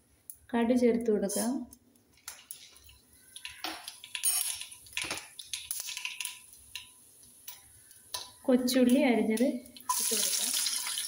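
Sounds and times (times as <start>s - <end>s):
mustard seeds popping in hot oil: 1.6s - 11.0s.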